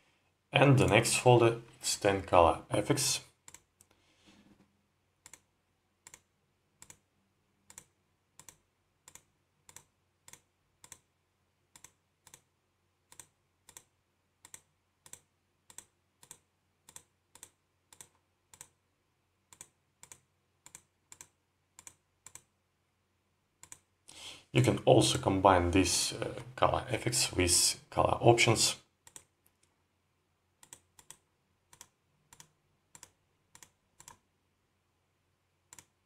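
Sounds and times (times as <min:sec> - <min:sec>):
faint computer mouse clicks: 0:05.2 - 0:07.0, 0:07.7 - 0:11.1, 0:11.7 - 0:12.5, 0:13.1 - 0:18.8, 0:19.5 - 0:22.5, 0:23.6 - 0:23.9, 0:29.0 - 0:29.7, 0:30.6 - 0:34.2, 0:35.7 - 0:35.9.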